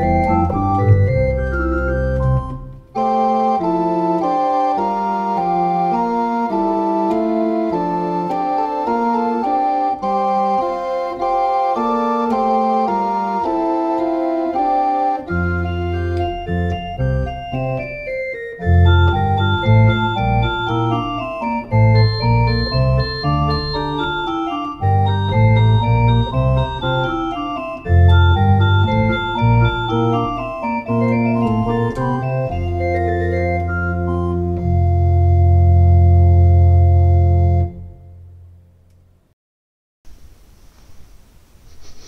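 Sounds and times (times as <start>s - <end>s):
electronic organ playing chords: 0.0s - 38.4s.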